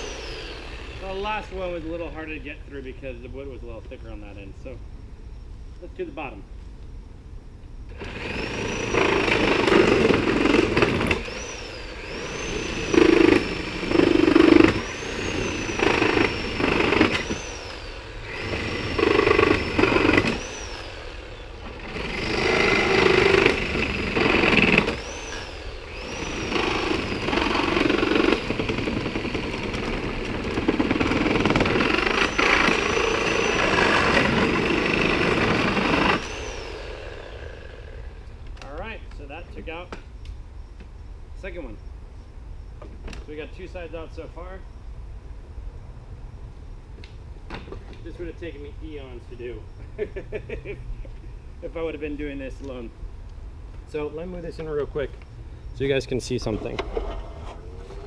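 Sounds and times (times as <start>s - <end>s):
reciprocating saw cutting wood: 0.0s - 2.2s, 7.9s - 38.2s.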